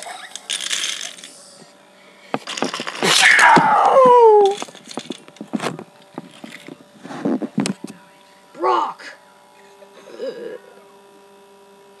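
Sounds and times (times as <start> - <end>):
person screaming: 3.0 - 4.6.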